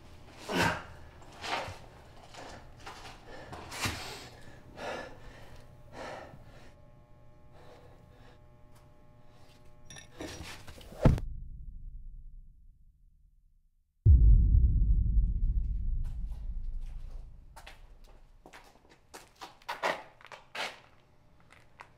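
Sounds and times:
man breathing hard: 2.3s - 6.8s
low rumble: 11.2s - 13.3s, 14.1s - 18.4s
loud thud: 14.1s - 18.3s.

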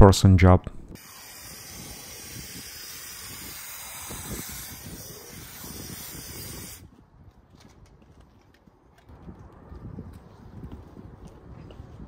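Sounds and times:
spray foam gun hissing: 1.0s - 6.8s.

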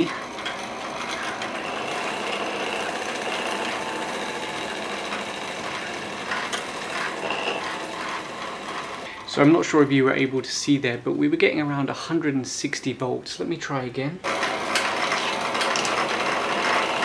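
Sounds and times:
steady mechanical whirring: 0.0s - 9.1s, 14.3s - 17.0s.

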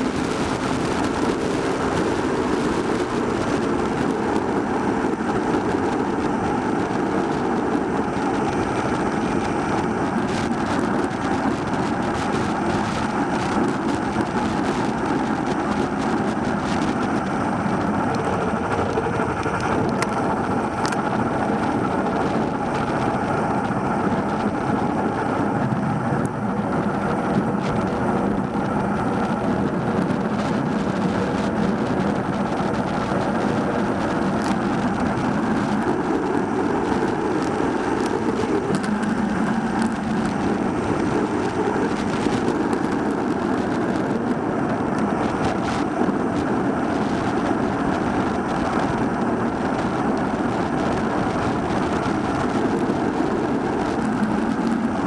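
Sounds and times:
wind noise on microphone: 0.0s - 55.0s.

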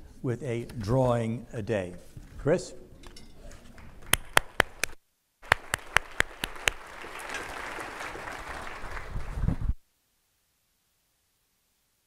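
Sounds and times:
audience clapping: 3.7s - 9.8s
loud sharp hand claps: 3.8s - 9.6s.

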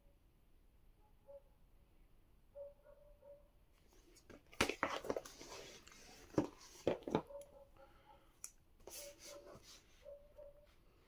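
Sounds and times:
packaging rustling: 4.0s - 7.2s.

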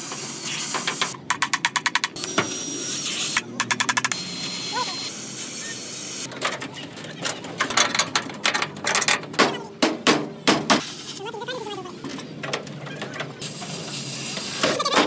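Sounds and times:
gas torch hissing: 0.0s - 1.2s, 2.2s - 3.4s, 13.4s - 14.8s.

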